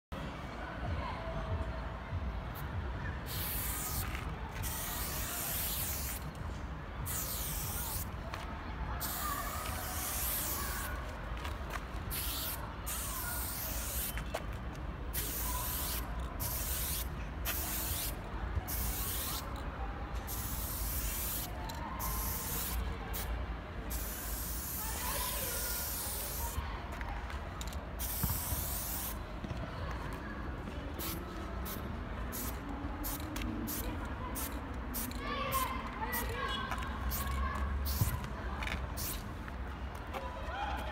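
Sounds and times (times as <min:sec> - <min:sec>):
spray paint can hissing: 0:03.3 - 0:06.3, 0:07.0 - 0:08.2, 0:09.0 - 0:11.1, 0:12.0 - 0:14.3, 0:15.1 - 0:19.6, 0:20.2 - 0:23.3, 0:23.9 - 0:26.6, 0:27.6 - 0:29.2, 0:31.0 - 0:36.3, 0:37.1 - 0:38.1, 0:39.0 - 0:39.2.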